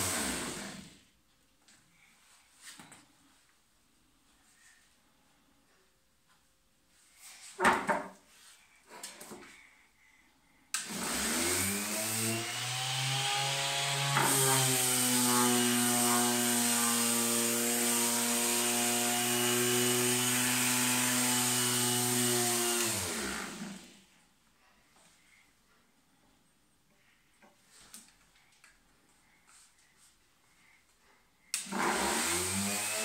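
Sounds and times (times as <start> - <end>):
orbital sander motor: 0.0 - 0.9, 10.8 - 24.0, 31.6 - 33.0.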